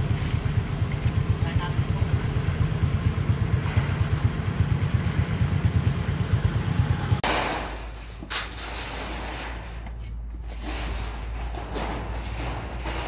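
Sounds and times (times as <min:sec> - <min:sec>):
diesel engine chugging: 0:00.0 - 0:08.0.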